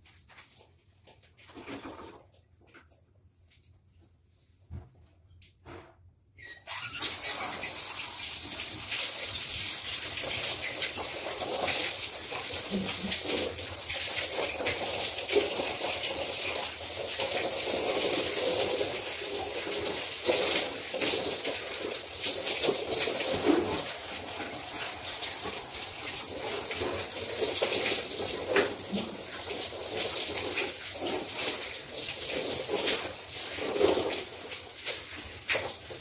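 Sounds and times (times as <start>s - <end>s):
shower spraying water: 6.4s - 36.0s
water splashing on floor: 6.5s - 36.0s.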